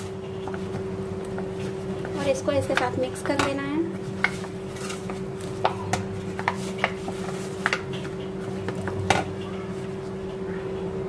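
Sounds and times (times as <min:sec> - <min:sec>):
hands kneading dough: 0:00.0 - 0:10.3.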